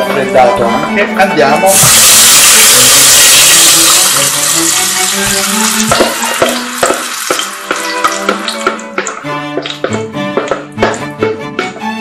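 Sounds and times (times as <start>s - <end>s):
sauce sizzling in hot oil: 1.7s - 9.8s
wooden spoon knocking on pot: 5.2s - 11.8s.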